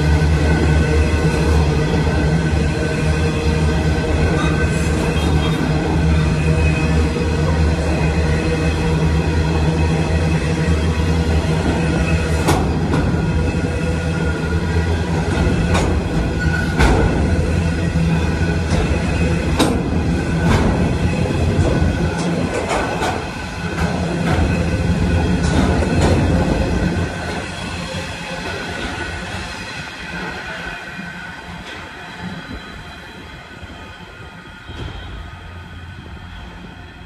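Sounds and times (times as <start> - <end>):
freight train rumbling past: 0.0 - 37.0
wheels clacking over rail joints: 18.6 - 27.6.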